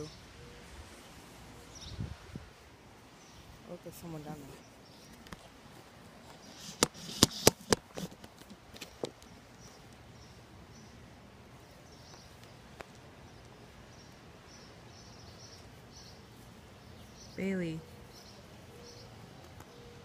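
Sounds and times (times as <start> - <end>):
sharp clicks and knocks: 6.7 - 9.3.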